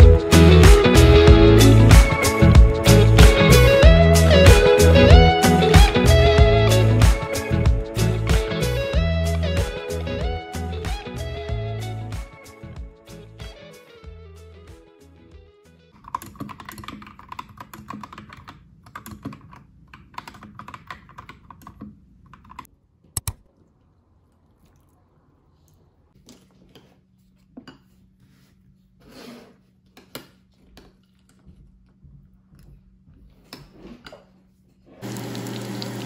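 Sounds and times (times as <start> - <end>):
mechanical keyboard typing: 16.0 - 22.7
short scrape: 29.0 - 29.6.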